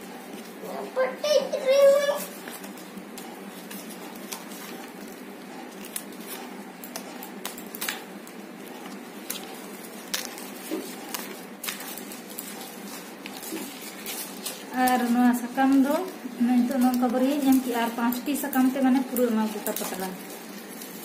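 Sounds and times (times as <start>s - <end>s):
sharp crackles: 5.5s - 21.0s
leaves rustling and crinkling: 7.4s - 21.0s.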